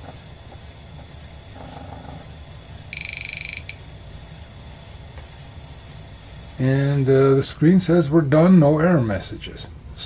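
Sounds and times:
rapid buzz of head steps: 0:00.0 - 0:07.4
floppy drive motor humming: 0:00.0 - 0:09.0.

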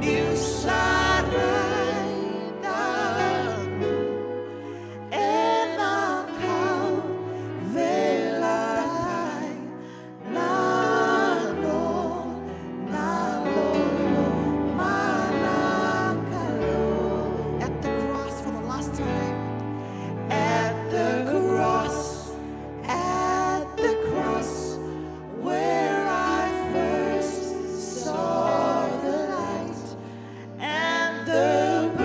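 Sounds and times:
man and woman singing along: 0:00.0 - 0:04.0, 0:30.6 - 0:32.0
woman singing gospel song: 0:30.6 - 0:32.0.

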